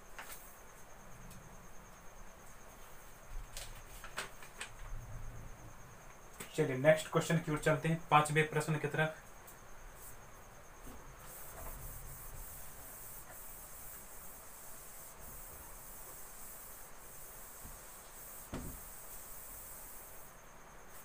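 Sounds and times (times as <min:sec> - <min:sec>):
cloth wiping a whiteboard: 0:10.9 - 0:20.3.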